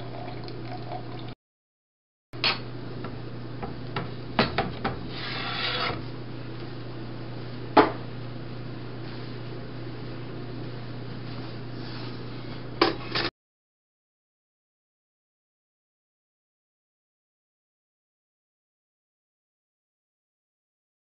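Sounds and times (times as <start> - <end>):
brief scraping: 5.1 - 6.0.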